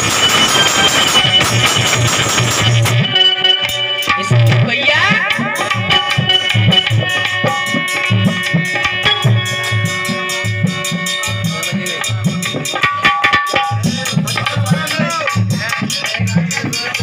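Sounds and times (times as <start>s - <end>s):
drum beat: 0.0s - 17.0s
harmonium chords: 0.0s - 17.0s
rattling percussion: 0.0s - 17.0s.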